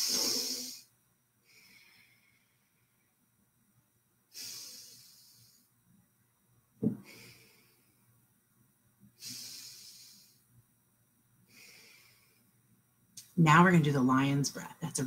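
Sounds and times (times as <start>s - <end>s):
woman breathing through the nose: 0.0s - 2.9s, 4.3s - 5.7s, 7.0s - 8.1s, 9.2s - 10.5s, 11.4s - 12.6s
brief thump: 6.8s - 7.0s.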